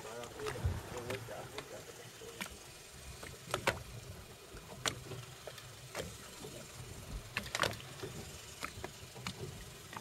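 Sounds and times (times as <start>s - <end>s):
low boat rumble: 0.0s - 10.0s.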